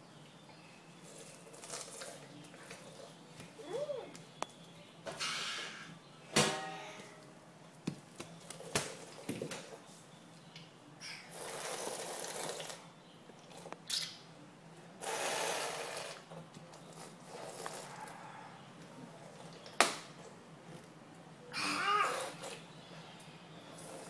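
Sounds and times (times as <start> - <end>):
children slurping liquid off floor: 1.0 - 3.1, 11.3 - 14.1, 15.0 - 18.2
child's falling vocal sound: 21.5 - 22.4.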